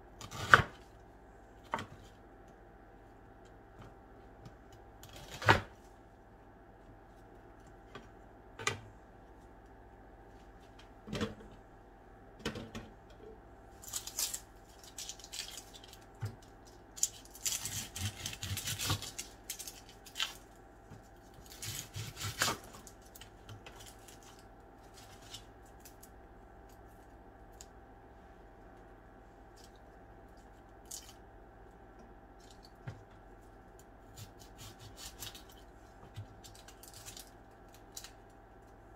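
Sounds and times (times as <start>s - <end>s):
onion skins crackling: 13.8s - 27.8s, 36.3s - 38.7s
knife cutting onion: 17.0s - 19.2s, 21.4s - 22.8s, 34.0s - 35.5s.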